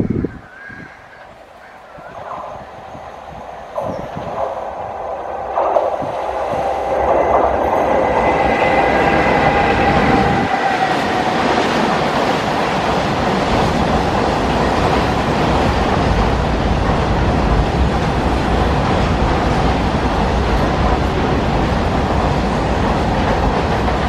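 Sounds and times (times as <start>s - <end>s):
locomotive whine: 1.1s - 13.2s
steel wheels rumbling on rail: 1.4s - 24.0s.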